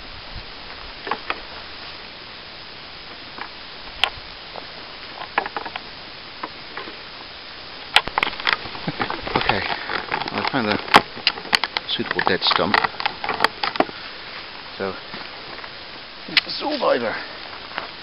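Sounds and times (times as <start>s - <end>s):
walking through long grass: 0.0s - 18.0s.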